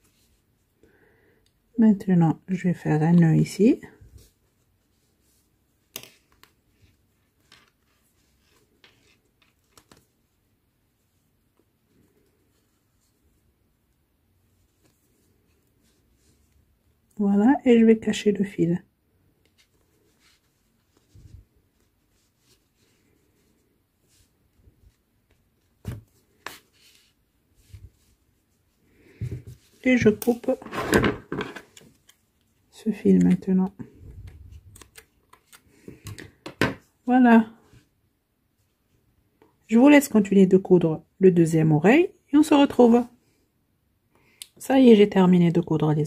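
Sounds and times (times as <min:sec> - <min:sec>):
soft yarn handling clicks and rustles: 0:03.0 - 0:17.2, 0:31.5 - 0:37.9.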